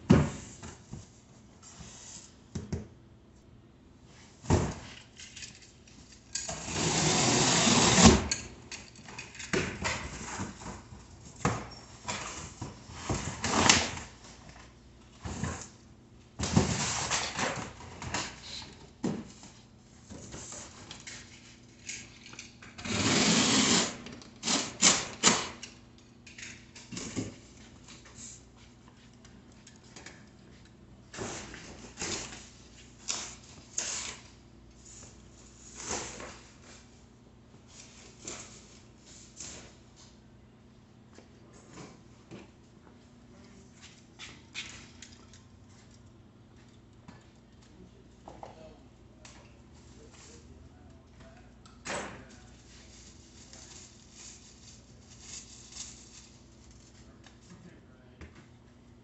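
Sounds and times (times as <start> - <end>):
cardboard and packing rustling: 52.2 - 57.2.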